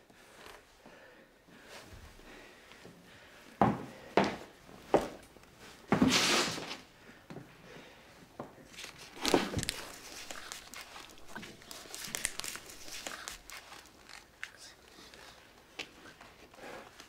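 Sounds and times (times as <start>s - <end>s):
rustling and shuffling: 8.2s - 17.0s.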